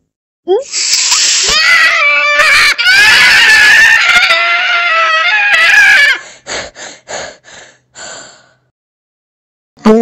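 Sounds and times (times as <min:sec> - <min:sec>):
cartoon cat screaming: 0:00.7 - 0:06.2.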